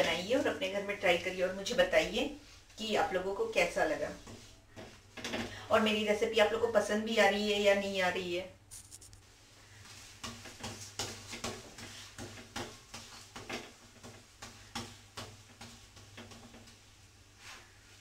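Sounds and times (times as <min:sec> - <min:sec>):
spatula scraping griddle pan: 0:09.6 - 0:17.7.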